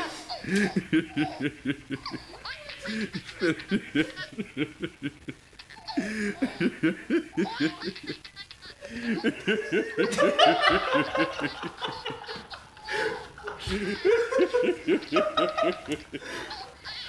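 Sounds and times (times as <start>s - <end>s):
man laughing uncontrollably: 0.3s - 16.9s.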